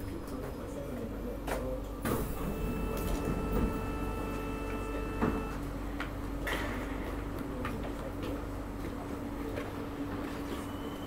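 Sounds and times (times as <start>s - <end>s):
low train hum: 0.0s - 11.0s
train doors sliding open: 2.0s - 5.6s
steady electronic tone: 2.2s - 5.6s.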